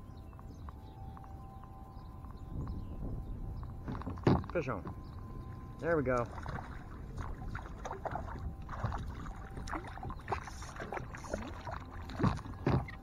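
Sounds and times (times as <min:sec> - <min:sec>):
water lapping at a hull: 0:03.6 - 0:13.0
thumps: 0:03.8 - 0:05.0
fish splashing at the surface: 0:06.3 - 0:12.4.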